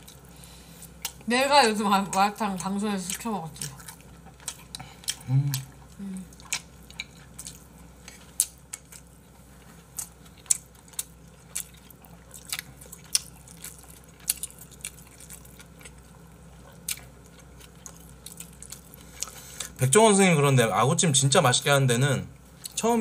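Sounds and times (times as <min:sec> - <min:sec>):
low room hum: 0:00.0 - 0:23.0
chewing and mouth smacks: 0:00.9 - 0:01.3, 0:03.1 - 0:19.8.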